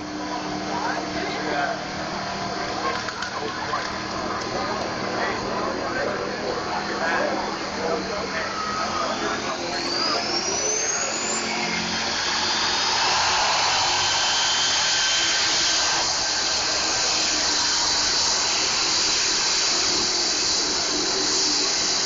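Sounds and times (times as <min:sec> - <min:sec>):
diesel truck engine at full throttle: 0:00.0 - 0:22.0.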